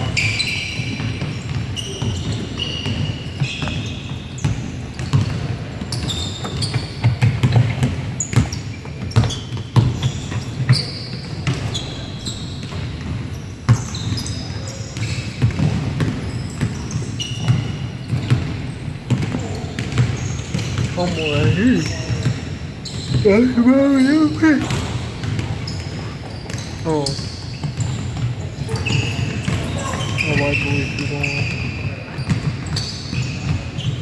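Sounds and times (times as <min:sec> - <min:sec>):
sneaker squeaks: 0:00.0 - 0:34.0
basketball bouncing on hardwood floor: 0:00.8 - 0:12.0, 0:15.0 - 0:23.6, 0:24.6 - 0:30.1.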